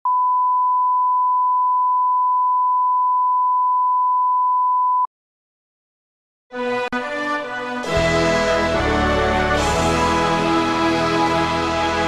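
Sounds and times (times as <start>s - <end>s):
music: 6.5s - 12.0s.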